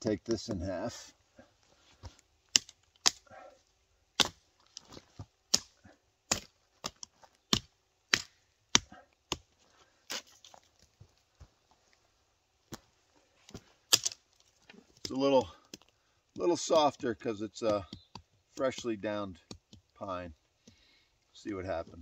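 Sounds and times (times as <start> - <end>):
machete chopping log: 2.5 - 3.2, 4.2 - 4.4, 5.5 - 9.4.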